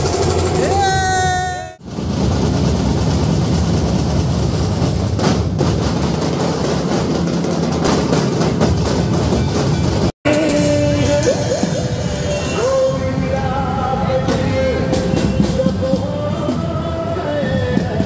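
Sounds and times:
crowd noise: 10.3s - 18.0s.

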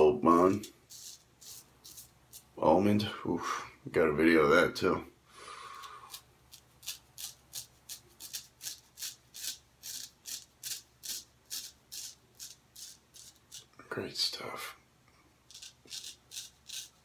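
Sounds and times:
razor scraping stubble: 0.3s - 2.6s, 5.7s - 13.7s, 15.5s - 17.0s.

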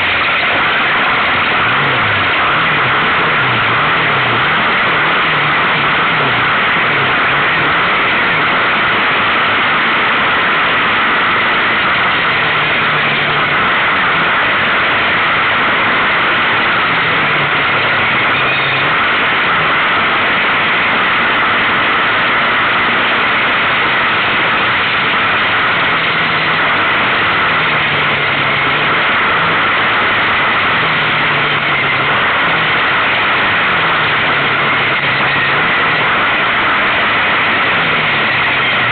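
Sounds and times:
quad engine revving: 0.0s - 38.9s.

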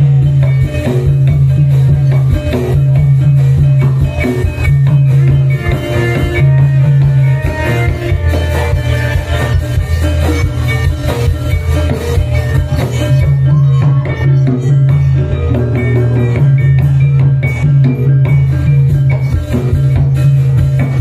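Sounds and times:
drums and percussion: 0.0s - 21.0s
sustained bass line: 0.0s - 21.0s
pitched melody notes: 0.1s - 20.6s.

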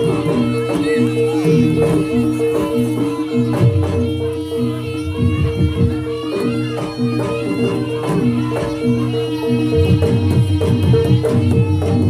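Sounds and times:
drumming: 0.0s - 12.0s.

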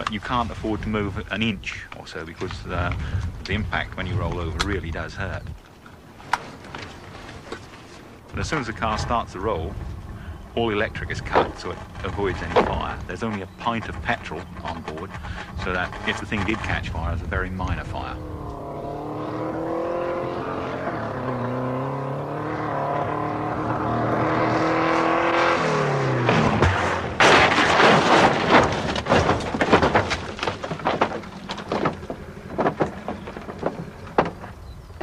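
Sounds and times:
crunching and clattering knocks: 0.0s - 18.6s, 26.2s - 35.0s
car engine revving: 8.4s - 34.6s
loud crash of car tipping over: 26.0s - 34.5s.

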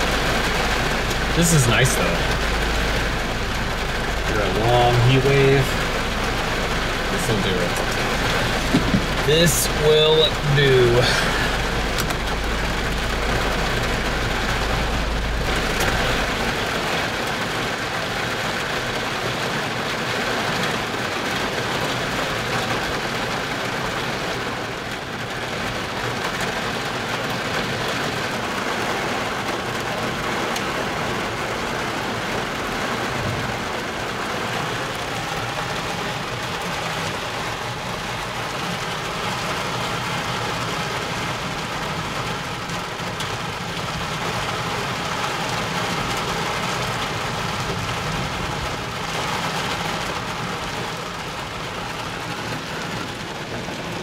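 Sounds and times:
deep low rumble: 0.0s - 18.9s
rain pouring: 0.0s - 54.0s.

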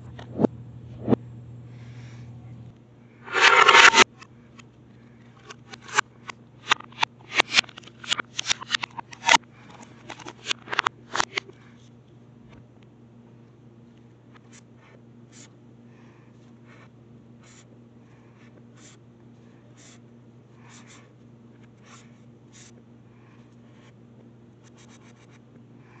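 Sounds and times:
steady low hum: 0.0s - 26.0s
marker scratching on paper reversed: 3.3s - 4.0s, 17.4s - 17.7s, 18.4s - 19.0s, 19.8s - 20.0s, 20.6s - 21.1s, 21.8s - 22.8s, 24.6s - 25.4s.

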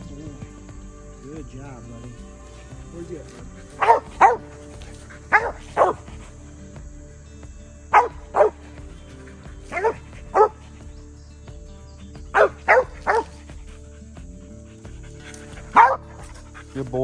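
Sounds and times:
dog barking: 3.6s - 6.4s, 7.9s - 8.7s, 9.6s - 10.6s, 12.3s - 13.8s, 14.7s - 16.8s.

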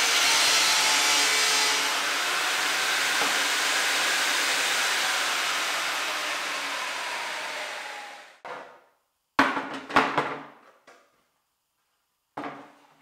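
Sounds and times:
table saw cutting wood: 0.0s - 8.4s.

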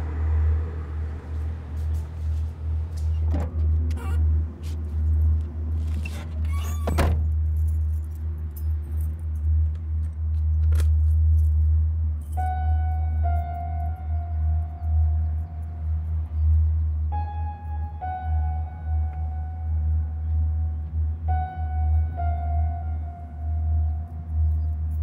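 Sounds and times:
car keys jangling: 5.0s - 12.6s
low droning film score: 9.5s - 25.0s.

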